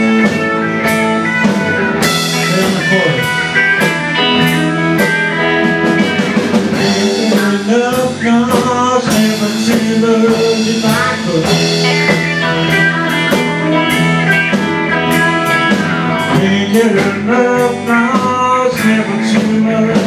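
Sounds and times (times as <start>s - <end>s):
blues band playing: 0.0s - 20.0s
electric guitar lead notes: 0.0s - 20.0s
drum hits: 0.1s - 17.2s.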